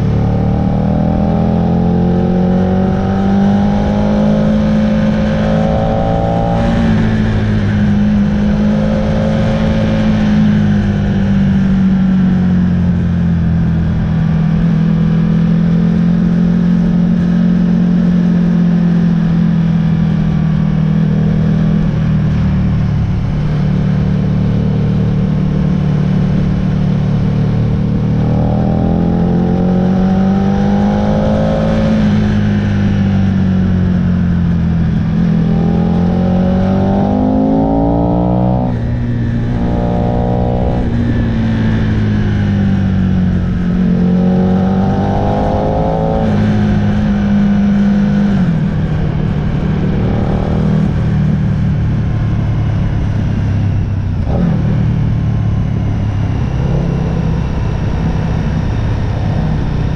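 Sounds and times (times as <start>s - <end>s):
motorcycle engine revving: 0.0s - 59.9s
wind rush: 45.4s - 59.9s.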